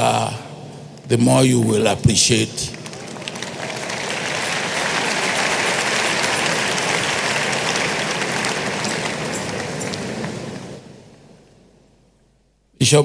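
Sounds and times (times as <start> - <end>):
congregation applauding: 2.1 - 10.9.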